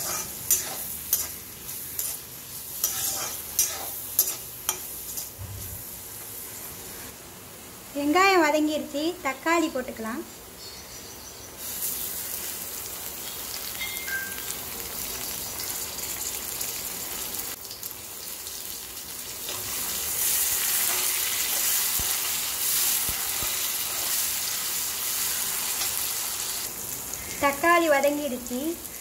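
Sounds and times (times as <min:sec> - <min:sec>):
spatula stirring in pan: 0:00.0 - 0:06.9
vegetables sizzling in hot oil: 0:00.0 - 0:29.0.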